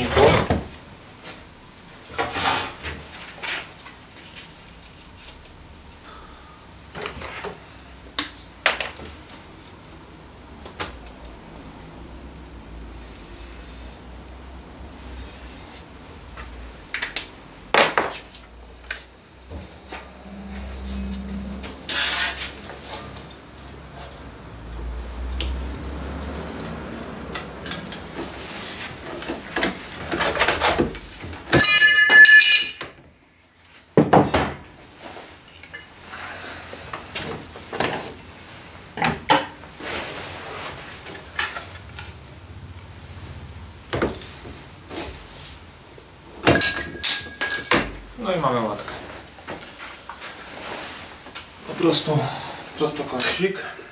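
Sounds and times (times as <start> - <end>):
metallic clinks and knocks: 31.5 - 32.9, 46.4 - 48.0
loud ringing metal clang: 31.6 - 32.8.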